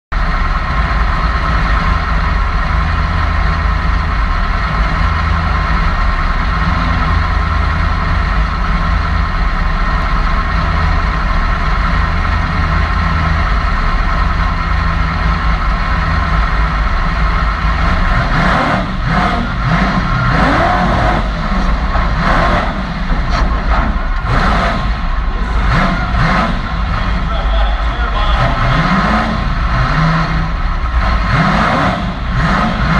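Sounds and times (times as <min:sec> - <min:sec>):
truck engine idling: 0:00.1 - 0:32.9
engine revving and accelerating: 0:04.7 - 0:09.1, 0:15.9 - 0:32.9.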